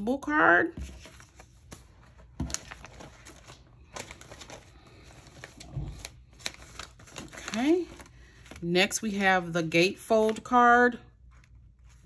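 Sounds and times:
paper rustling: 0:00.8 - 0:08.8, 0:11.2 - 0:12.0.

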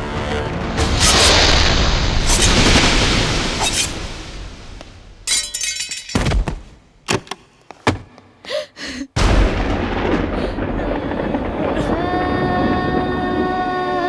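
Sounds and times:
sharp knocks and blows: 0:06.1 - 0:08.2
loud low rumble: 0:09.2 - 0:14.0.

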